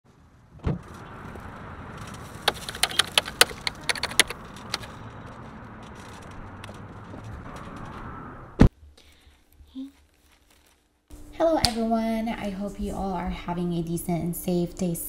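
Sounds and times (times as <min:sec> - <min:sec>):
outdoor background noise: 0:00.1 - 0:15.0
sharp clicks and rattles: 0:00.9 - 0:08.1.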